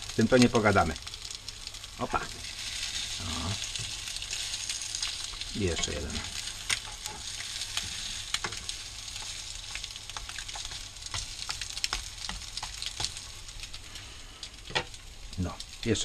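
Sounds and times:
patties sizzling in hot oil: 0.0s - 16.0s
spatula scraping a pan: 2.4s - 13.2s.

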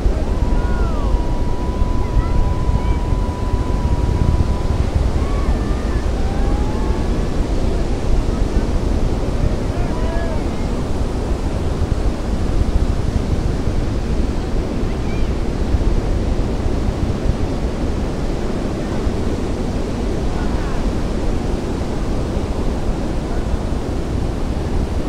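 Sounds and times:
distant rocket engines rumbling: 0.0s - 25.0s.

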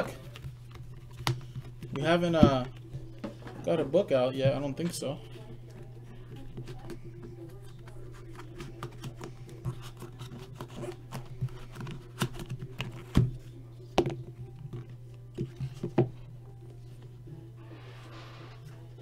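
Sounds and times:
steady low hum: 0.0s - 19.0s
cardboard box and cards handled: 6.3s - 13.4s.

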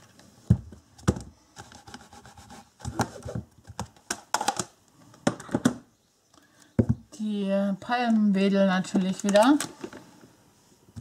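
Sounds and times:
plastic tools clicking and tapping: 2.8s - 7.0s, 8.0s - 10.0s.

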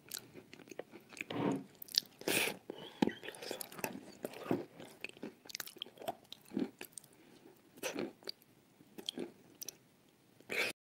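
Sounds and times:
wet chewing and lip-smacking: 3.1s - 7.2s.

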